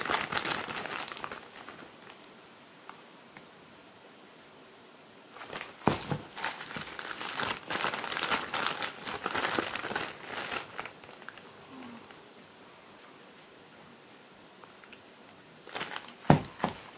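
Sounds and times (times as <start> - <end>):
plastic bags crinkling: 0.0 - 2.3, 5.3 - 11.5, 15.6 - 16.9.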